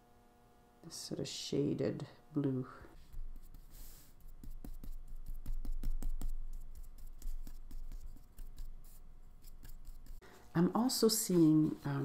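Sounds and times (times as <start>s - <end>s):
paintbrush tapping on paper: 4.4s - 8.8s.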